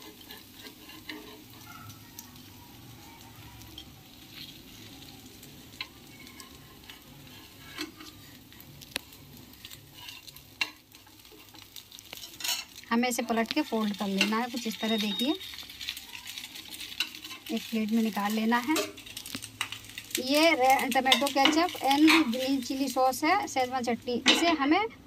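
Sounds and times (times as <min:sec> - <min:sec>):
metal spatula scraping and tapping: 0:00.0 - 0:01.7, 0:05.7 - 0:12.8, 0:14.2 - 0:17.5, 0:18.6 - 0:20.0, 0:20.8 - 0:22.4
faint sizzle on hot pan: 0:00.0 - 0:25.0.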